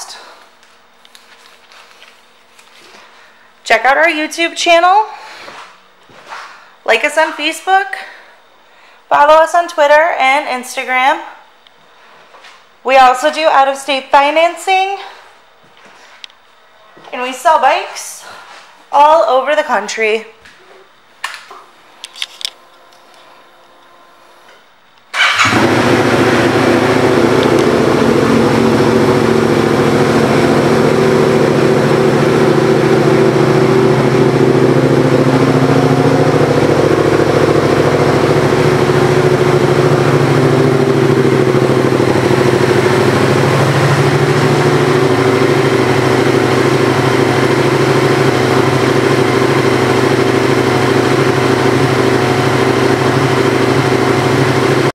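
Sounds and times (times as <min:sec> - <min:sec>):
motorcycle engine starting and idling: 0:25.1 - 0:54.9.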